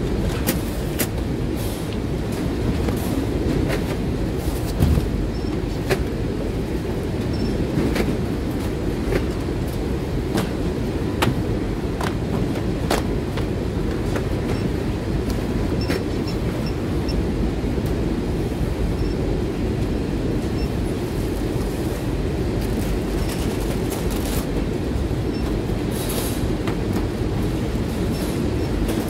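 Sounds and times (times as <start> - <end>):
low warehouse rumble: 0.0 - 29.0.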